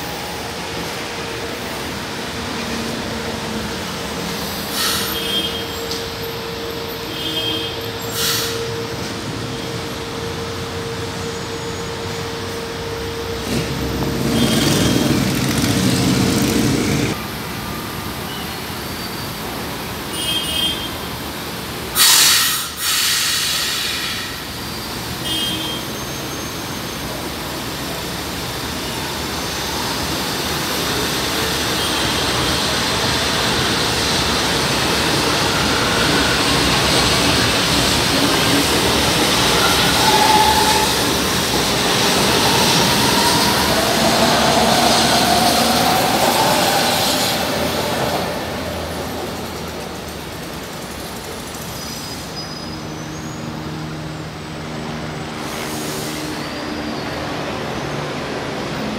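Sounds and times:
train pulling out: 0.0s - 20.0s, 21.4s - 25.2s, 25.8s - 58.9s
short loud hiss: 22.0s - 24.3s.

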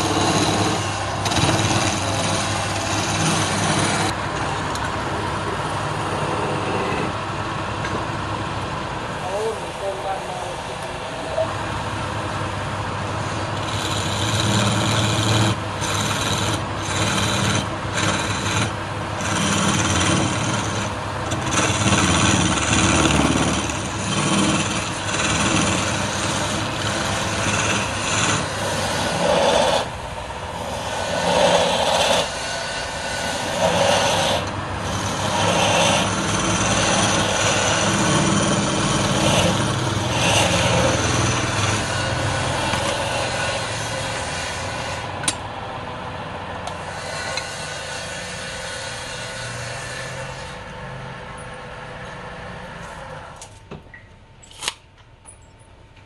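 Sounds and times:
gouge scraping wood: 0.0s - 4.2s, 6.1s - 7.2s, 13.2s - 45.1s, 46.7s - 50.6s
lathe motor humming: 0.0s - 53.4s.

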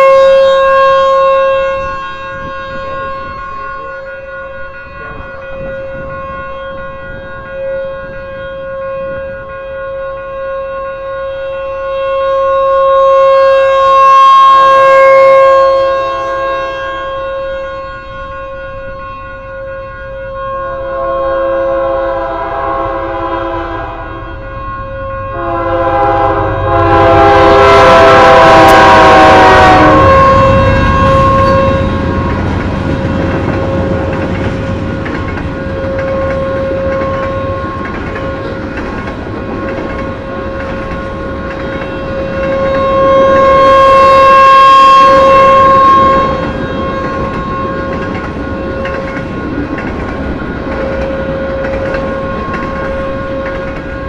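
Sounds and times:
train horn: 0.0s - 54.0s
train passing: 0.0s - 54.0s
warning siren steady tone: 0.0s - 54.0s
second horn-like tone: 11.6s - 33.1s.

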